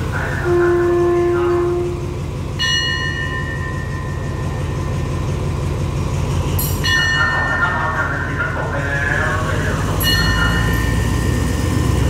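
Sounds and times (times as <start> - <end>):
diesel train idling: 0.0 - 12.0
bell ringing: 2.6 - 5.2, 6.6 - 8.4, 9.9 - 12.0.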